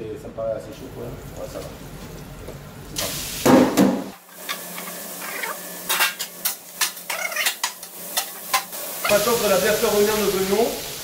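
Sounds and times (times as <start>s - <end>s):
onions sizzling in hot oil: 3.0s - 11.0s.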